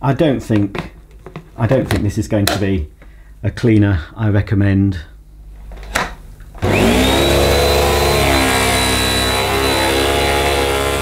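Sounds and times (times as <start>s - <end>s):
vacuum cleaner motor whine: 6.6s - 11.0s.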